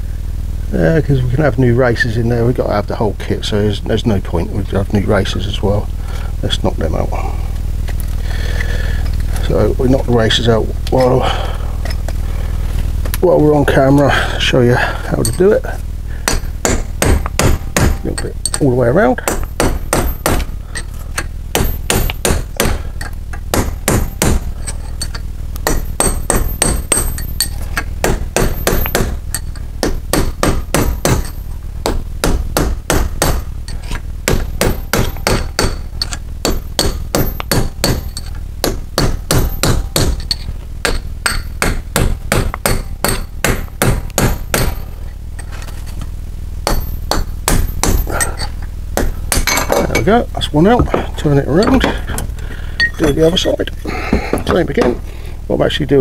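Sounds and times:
hammer striking metal: 16.2s - 20.9s, 21.5s - 33.5s, 34.2s - 45.0s, 46.6s - 52.2s.

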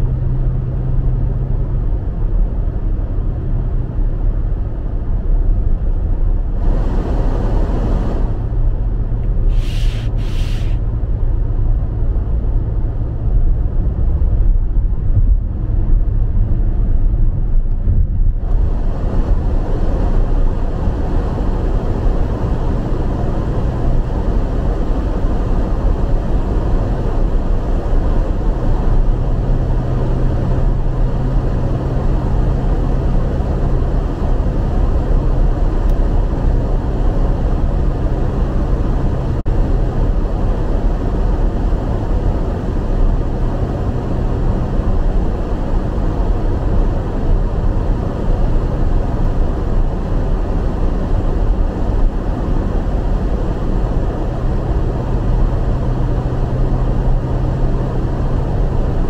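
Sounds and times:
tyre rumble and engine hum: 0.0s - 59.0s
bright hiss: 9.5s - 10.8s.

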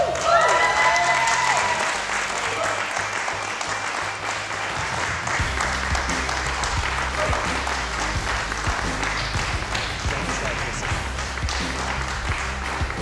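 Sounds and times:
small group applauding: 0.0s - 13.0s
background music with bass beat: 5.2s - 13.0s.

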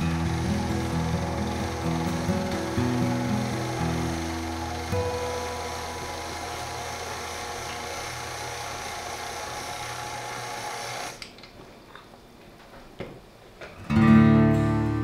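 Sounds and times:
acoustic guitar music: 0.0s - 8.6s, 13.8s - 15.0s
stand mixer motor whining: 0.0s - 11.2s.

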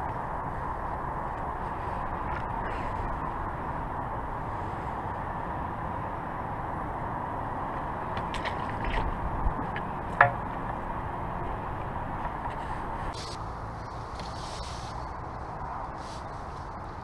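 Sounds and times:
outdoor background hiss: 0.0s - 17.0s
landing net knock: 10.1s - 10.7s.

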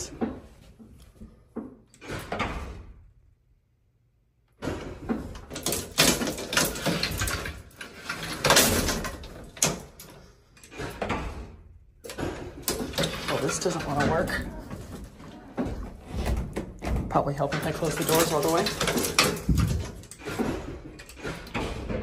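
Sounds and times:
loud knocks and clatters: 4.5s - 22.0s
metal gate rattling and clanking: 4.6s - 15.2s, 16.7s - 22.0s.

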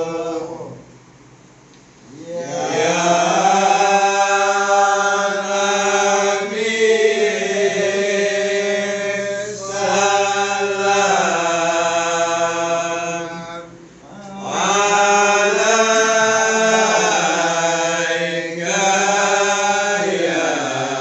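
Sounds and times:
men chanting together: 2.1s - 21.0s.

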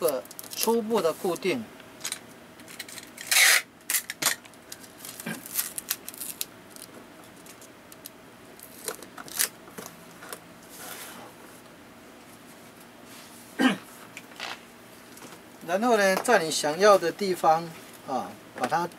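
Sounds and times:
tape crackling and rubbing: 2.7s - 11.0s.

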